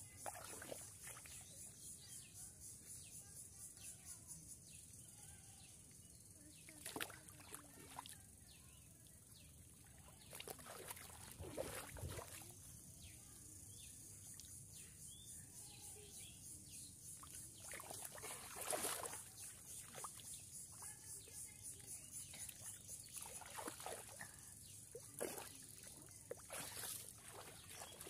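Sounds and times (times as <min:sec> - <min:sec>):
splashing in muddy water: 0:00.2 - 0:01.4, 0:06.6 - 0:08.2, 0:09.8 - 0:12.6, 0:17.2 - 0:21.0, 0:22.3 - 0:28.0.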